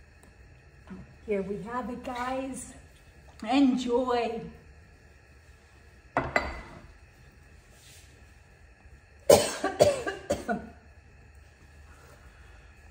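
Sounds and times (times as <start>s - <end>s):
woman coughing: 9.3s - 10.8s.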